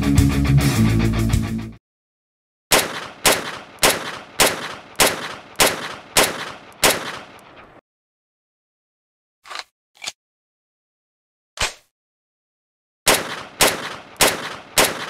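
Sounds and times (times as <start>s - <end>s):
pistol shots with echo: 2.7s - 7.8s, 13.1s - 15.0s.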